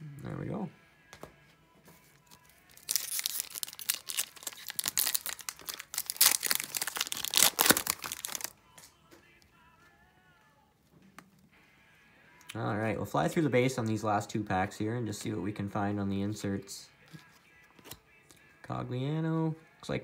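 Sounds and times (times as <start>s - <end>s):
foil wrapper tearing and crinkling: 2.2s - 8.5s.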